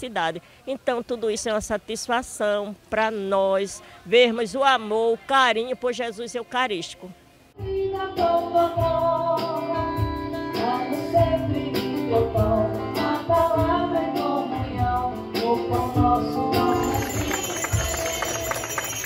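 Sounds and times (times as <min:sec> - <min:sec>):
woman singing into a microphone: 0:07.6 - 0:17.2
drum kit steady beat: 0:07.6 - 0:18.8
acoustic guitar: 0:07.6 - 0:19.0.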